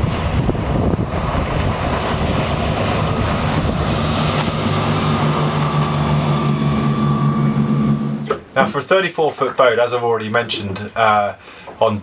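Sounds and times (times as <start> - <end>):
rush of water and spray: 0.0 - 8.5
wind buffeting microphone: 0.0 - 8.5
low engine drone: 0.0 - 9.0.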